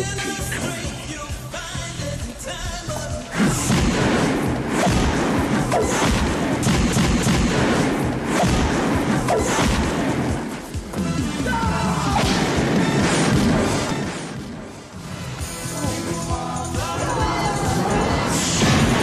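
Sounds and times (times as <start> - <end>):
fight scene soundtrack music: 0.0 - 19.0
heavy thuds and booms: 3.2 - 11.2, 12.1 - 15.1.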